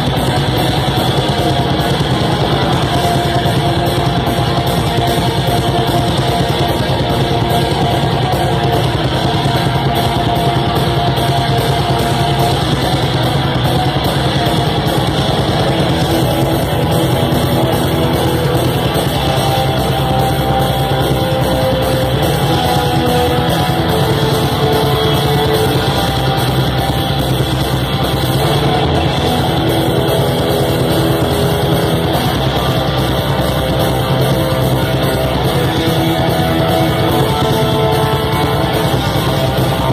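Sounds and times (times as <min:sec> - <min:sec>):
distorted electric guitars: 0:00.0 - 0:39.9
drums: 0:00.0 - 0:39.9.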